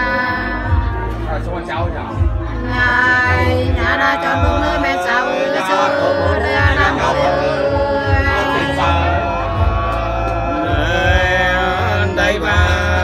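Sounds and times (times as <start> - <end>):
two women singing a folk duet: 0.0 - 1.2, 2.6 - 11.6.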